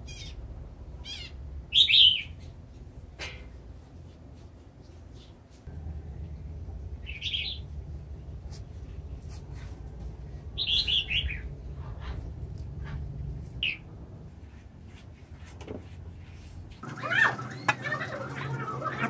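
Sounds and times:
low steady hum: 0.0s - 19.0s
small birds chirping: 1.0s - 2.7s, 6.9s - 7.8s, 10.5s - 12.2s, 13.6s - 13.9s.

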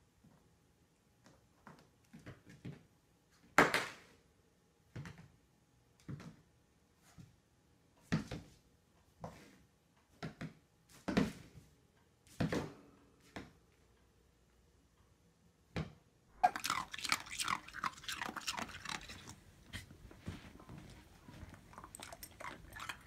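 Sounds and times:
puppy paws thumping on floor: 19.0s - 22.7s.

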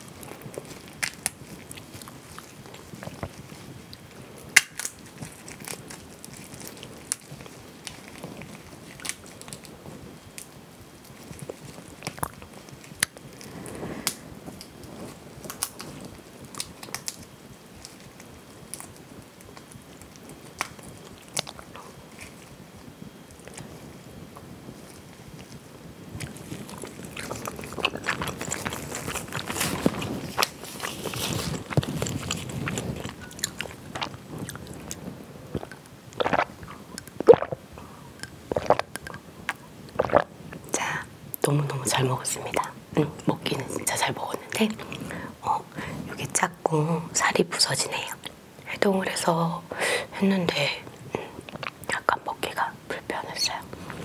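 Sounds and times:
chewing: 0.2s - 9.7s, 24.8s - 40.6s, 50.9s - 51.9s
crayfish shells cracking: 0.6s - 3.2s, 4.5s - 9.7s, 26.2s - 35.0s, 38.2s - 40.3s
person swallowing a drink: 31.4s - 34.8s, 35.5s - 40.7s.

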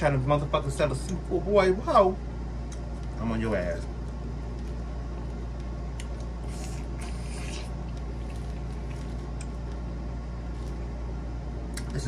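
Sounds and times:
steady low hum: 0.0s - 12.0s
chewing noises: 3.9s - 10.8s.

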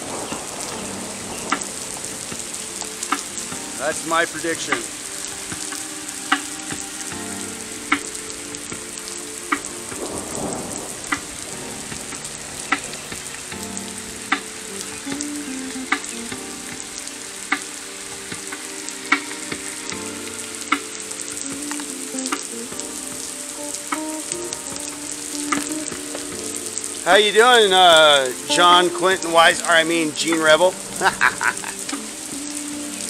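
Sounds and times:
heavy rain hissing: 0.0s - 33.0s.

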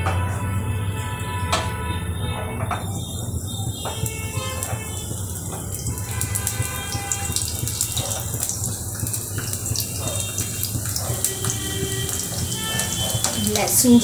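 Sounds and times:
garlic sizzling in hot oil: 3.8s - 14.0s.

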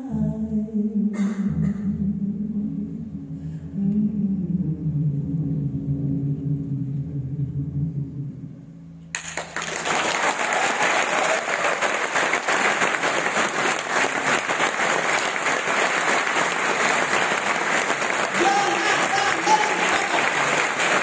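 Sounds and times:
large audience applauding: 9.2s - 21.0s.

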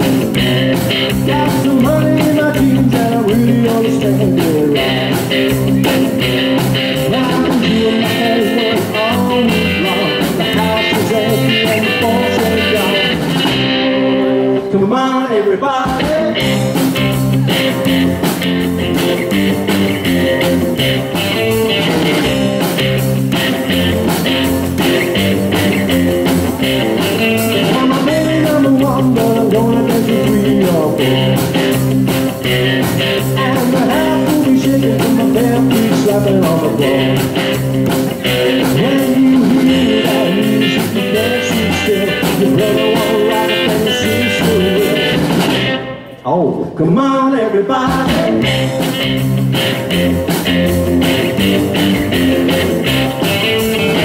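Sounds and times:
upright double bass: 0.0s - 14.9s, 16.0s - 45.8s, 47.8s - 54.0s
drums: 0.0s - 54.0s
electric guitar: 0.0s - 54.0s
man singing: 1.1s - 13.2s, 13.8s - 16.8s, 21.1s - 22.8s, 27.3s - 31.4s, 33.2s - 37.6s, 38.4s - 45.4s, 46.2s - 48.8s, 53.2s - 54.0s.

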